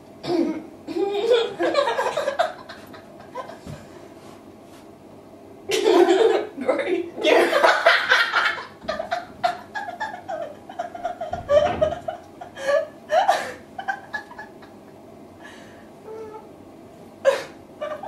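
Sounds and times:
women laughing: 1.1 - 3.7, 5.7 - 6.5, 7.3 - 15.0, 17.3 - 18.0.

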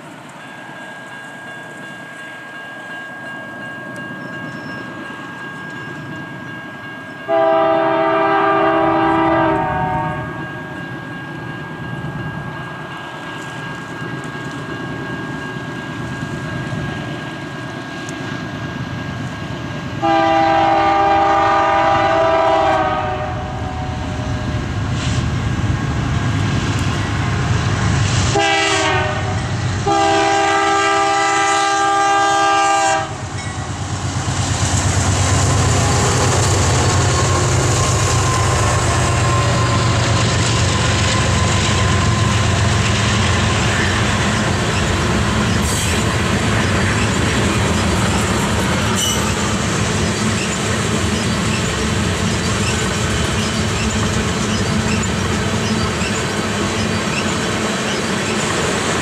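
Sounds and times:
train rumbling past on rails: 0.0 - 59.0
locomotive air horn: 7.3 - 10.4, 20.0 - 24.2, 28.3 - 33.2.

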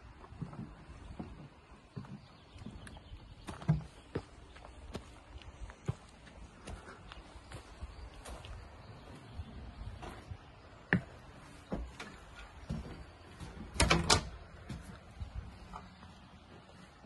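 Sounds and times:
footsteps on wooden deck: 0.0 - 17.0
wooden door clicking open: 13.6 - 14.4.

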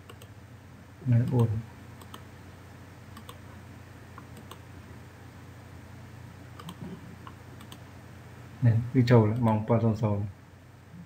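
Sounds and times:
computer mouse clicks: 0.0 - 0.3, 1.2 - 2.3, 3.1 - 3.4, 4.2 - 4.6, 6.6 - 7.8
low room hum: 0.0 - 11.0.

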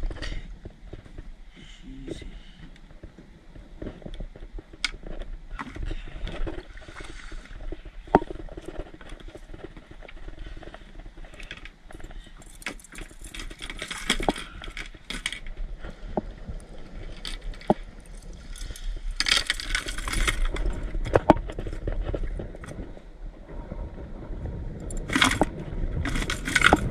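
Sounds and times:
steady low rumble: 14.2 - 26.9
gear knocking in plastic kayak: 24.8 - 26.9.

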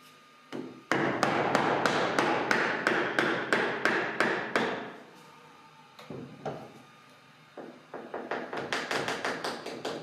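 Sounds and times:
wooden mallet striking chisel: 0.5 - 4.9, 7.6 - 10.0.

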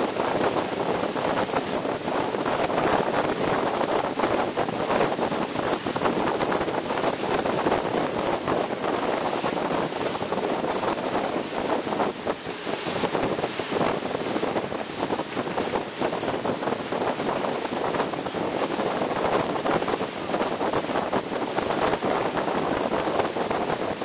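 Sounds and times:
water rushing along hull: 0.0 - 24.0
wind buffeting microphone: 0.0 - 24.0.

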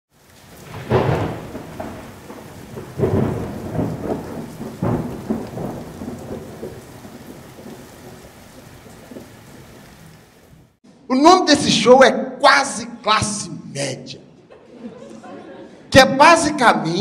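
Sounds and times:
steady rain: 0.1 - 10.8
rolling thunder: 0.2 - 10.8.

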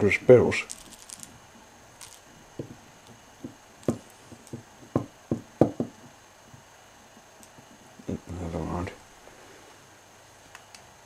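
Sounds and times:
wooden toy knocking on wooden shelf: 3.4 - 5.9.

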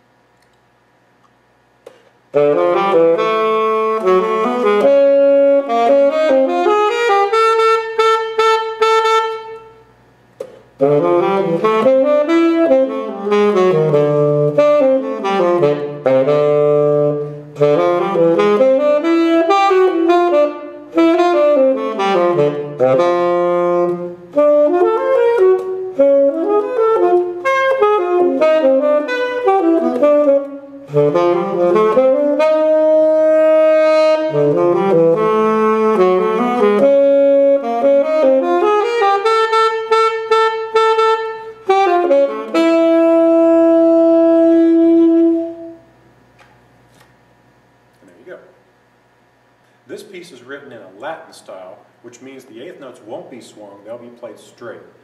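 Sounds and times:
solo tenor saxophone: 2.3 - 9.9, 10.8 - 46.1.

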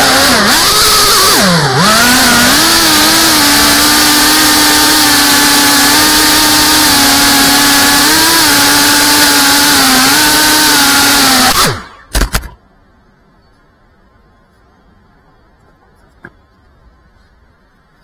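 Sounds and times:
drone propellers buzzing: 0.0 - 12.3.

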